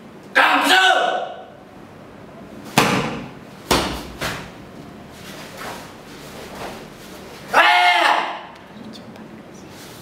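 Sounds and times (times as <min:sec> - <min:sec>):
feet striking foam mat: 0:02.7 - 0:07.2.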